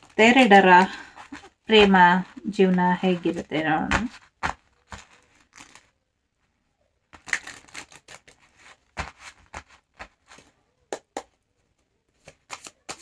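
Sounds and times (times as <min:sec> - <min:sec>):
cards being shuffled: 0:00.0 - 0:06.0, 0:07.2 - 0:10.5, 0:12.2 - 0:13.0.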